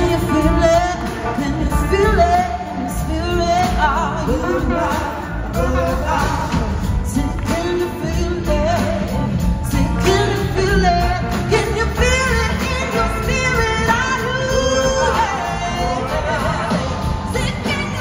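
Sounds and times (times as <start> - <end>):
bass guitar: 0.0 - 18.0
drums: 0.0 - 18.0
vocals singing: 0.0 - 18.0.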